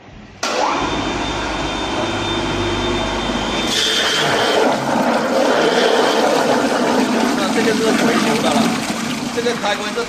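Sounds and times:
mill motor humming with whine: 0.0s - 6.5s
water pouring into steel hopper: 3.7s - 10.0s.

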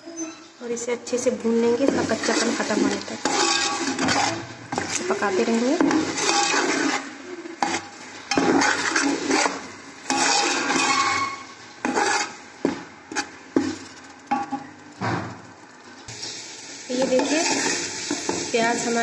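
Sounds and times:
metal spoon scraping pot: 1.8s - 12.4s, 17.0s - 19.0s.

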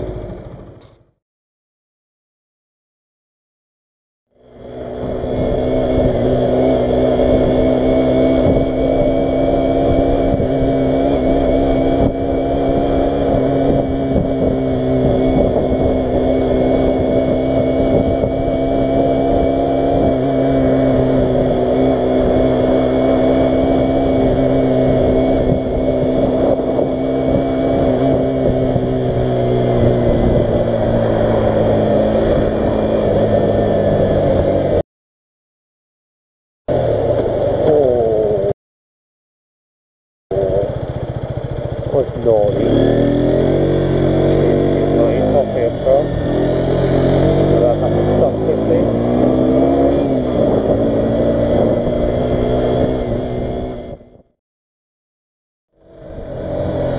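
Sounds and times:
motorcycle engine running: 0.0s - 1.2s, 4.3s - 34.8s, 36.7s - 38.5s, 40.3s - 54.3s, 55.7s - 56.9s
wind rumble on microphone: 5.1s - 34.8s, 40.3s - 54.3s, 55.8s - 56.9s.

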